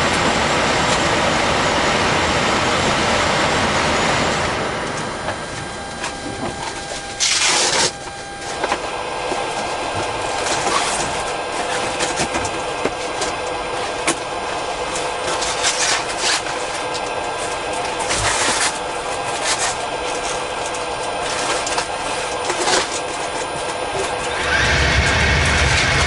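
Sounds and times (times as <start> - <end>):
electrical hum and hiss: 0.0 - 26.0
faint steady tones: 4.5 - 10.4.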